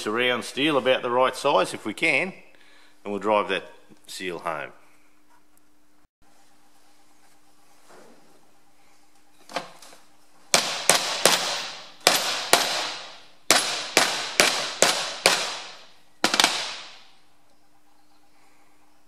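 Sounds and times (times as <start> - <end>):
hammer striking steel plate: 10.6 - 17.0.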